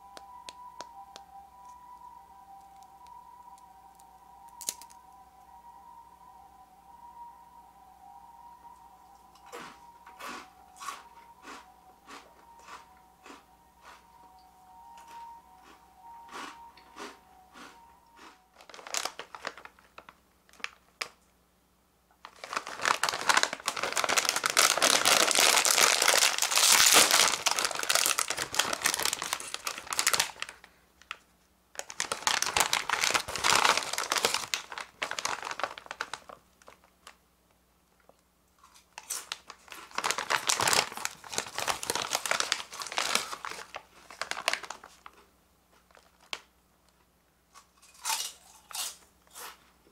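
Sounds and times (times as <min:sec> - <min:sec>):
foil bag crinkling: 0:18.2 - 0:21.1, 0:22.2 - 0:31.2, 0:31.8 - 0:37.2, 0:39.0 - 0:45.2, 0:45.8 - 0:46.5.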